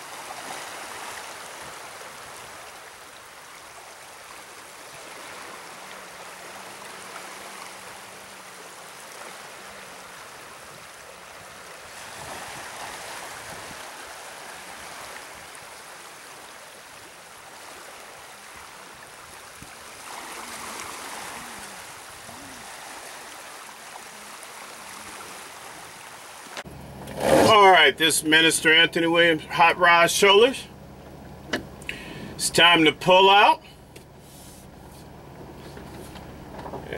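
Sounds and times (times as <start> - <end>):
water churning below gates: 0.0 - 36.9.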